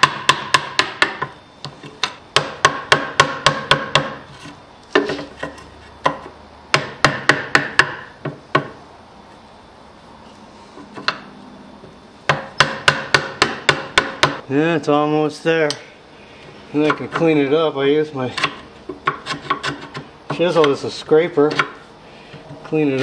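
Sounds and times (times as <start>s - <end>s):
chisel chopping into wood: 0.0s - 1.3s, 2.0s - 4.2s, 4.9s - 8.8s, 12.3s - 14.4s.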